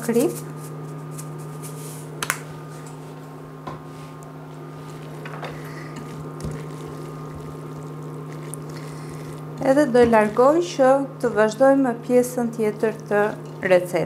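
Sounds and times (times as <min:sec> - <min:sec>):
steady low hum: 0:00.0 - 0:14.0
spoon stirring filling in a pot: 0:04.7 - 0:11.6.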